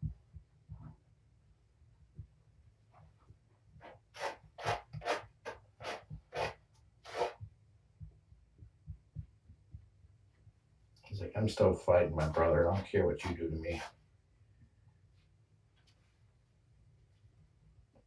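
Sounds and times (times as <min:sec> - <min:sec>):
cat claws scratching: 0:03.8 - 0:07.4.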